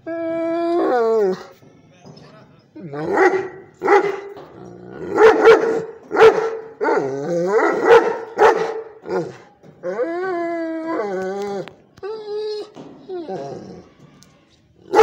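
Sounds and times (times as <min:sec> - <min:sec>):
dog howling: 0:00.0 - 0:01.5, 0:09.1 - 0:13.9
dog barking: 0:03.0 - 0:04.3, 0:05.1 - 0:09.4.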